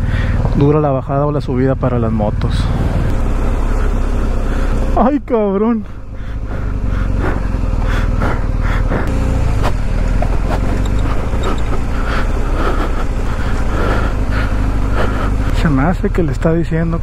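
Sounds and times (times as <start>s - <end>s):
motorcycle engine rumbling: 0.0s - 17.0s
knocks and rattles: 9.6s - 14.0s.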